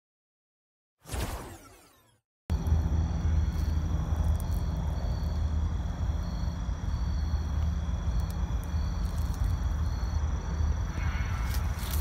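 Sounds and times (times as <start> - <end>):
insects trilling: 2.5 - 12.0.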